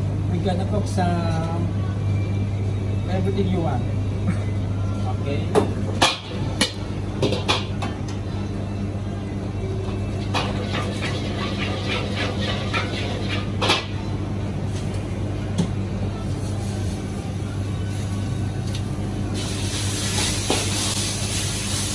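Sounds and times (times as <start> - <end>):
gas range low hum: 0.0 - 21.9
crackling sizzle: 16.2 - 21.9.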